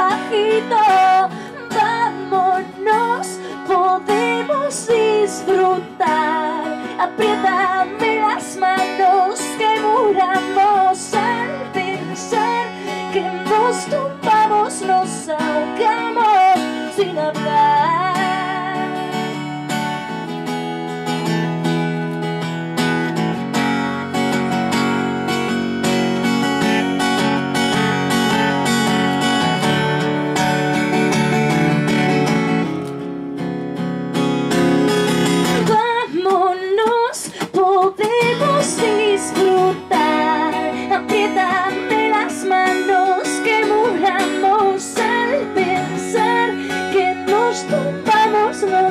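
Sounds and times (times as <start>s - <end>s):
woman singing: 0.0s - 19.6s, 35.4s - 48.9s
acoustic guitar strumming: 0.0s - 48.9s.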